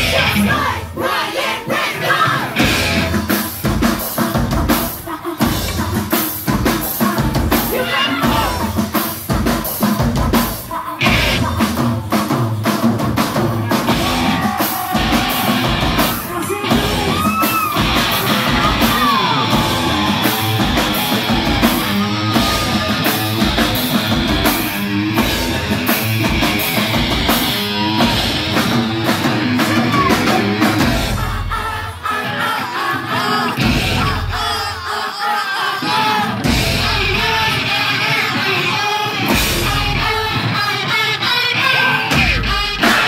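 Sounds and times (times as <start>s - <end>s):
hard-hitting drum beat: 2.4s - 32.0s, 33.5s - 34.9s, 36.1s - 41.1s, 42.0s - 43.0s
electric guitar: 11.0s - 11.6s, 13.6s - 31.3s.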